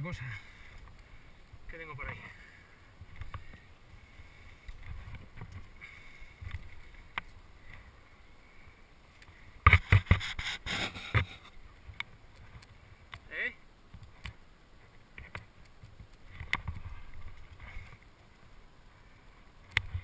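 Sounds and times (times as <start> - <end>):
climbing rope being handled: 3.0 - 8.1, 9.1 - 13.3, 13.9 - 18.6, 19.6 - 20.0
wind rumble on microphone: 14.8 - 18.1.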